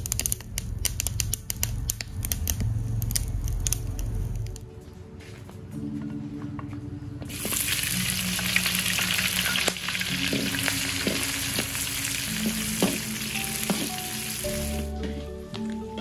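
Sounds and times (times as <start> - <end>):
food sizzling in hot oil: 7.3 - 14.9.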